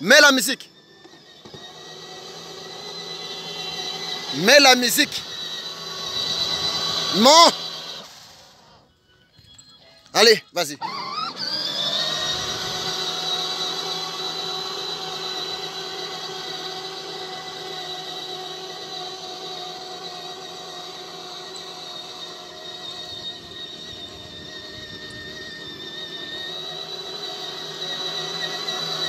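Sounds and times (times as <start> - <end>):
electric motor and gearbox whining: 0.0 - 29.0.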